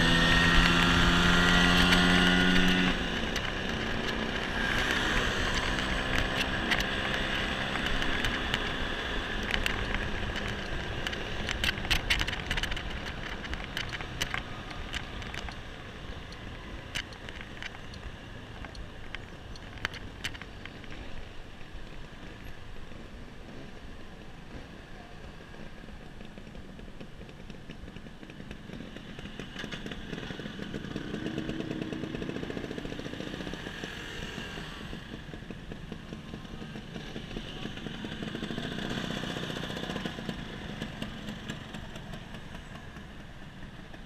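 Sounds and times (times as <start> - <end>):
road and wind noise: 0.0 - 44.0
scooter engine: 0.0 - 44.0
light clicks and rattles: 9.4 - 21.1.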